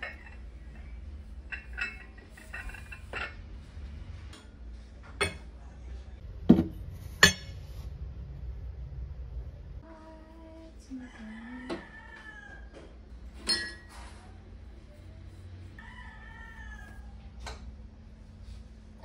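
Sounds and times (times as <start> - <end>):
cups clinking on a shelf: 0.0 - 3.5, 4.3 - 5.6, 6.5 - 7.6, 11.7 - 14.2.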